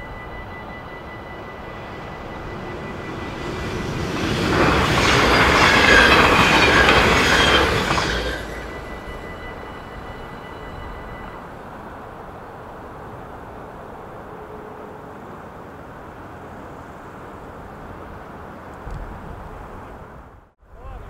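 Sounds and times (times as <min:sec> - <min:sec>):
crossing signal warning tone: 0:00.0 - 0:12.3
train passing at speed: 0:00.0 - 0:20.6.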